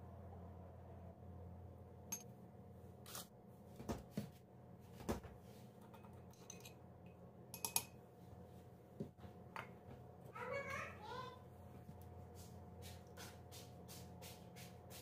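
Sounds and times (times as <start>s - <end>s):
low steady hum: 0.0s - 13.4s
metal spoon clinking on bowl: 6.0s - 6.8s, 7.6s - 8.0s.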